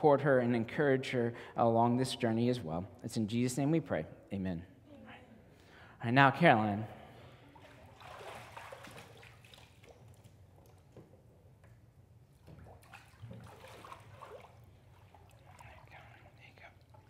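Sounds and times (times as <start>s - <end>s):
water sloshing and trickling: 7.4s - 11.5s, 12.2s - 17.0s.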